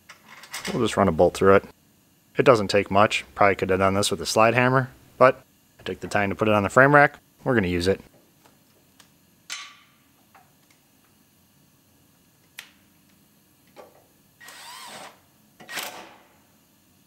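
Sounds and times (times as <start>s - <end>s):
mechanical whir: 14.4s - 16.3s.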